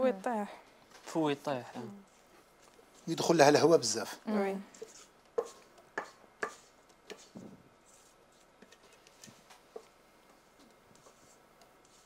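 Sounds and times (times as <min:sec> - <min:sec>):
spatula scraping metal bowl: 0:04.7 - 0:09.0.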